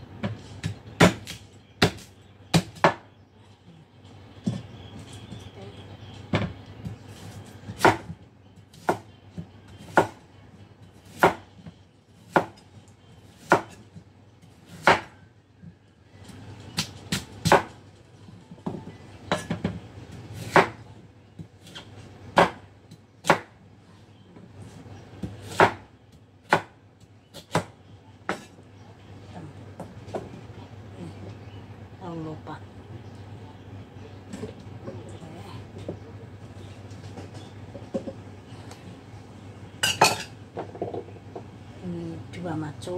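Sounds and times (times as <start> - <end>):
knife chopping on wooden board: 14.8 - 15.1, 25.2 - 25.8.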